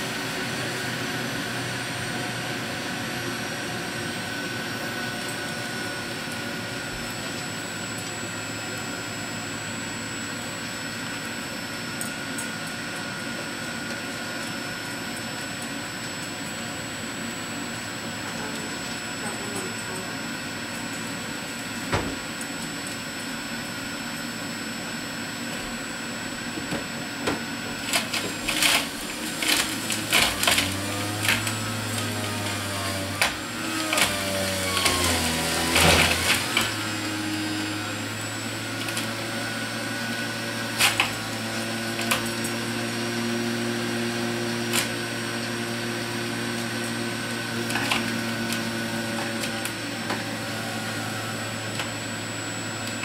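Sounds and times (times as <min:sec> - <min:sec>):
juicer motor humming: 0:00.0 - 0:53.0
vegetables crunching and grinding: 0:27.8 - 0:38.0.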